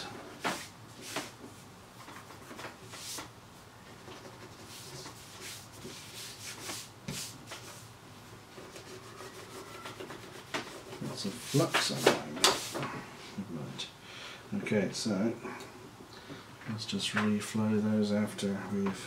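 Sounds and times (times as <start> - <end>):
hand rubbing on plastic mat: 4.0 - 12.9.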